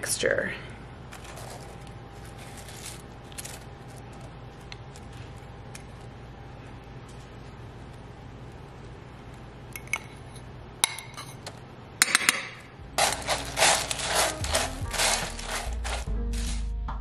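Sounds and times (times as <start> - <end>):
spatula stirring crunchy cereal: 1.2 - 4.3, 13.0 - 16.6.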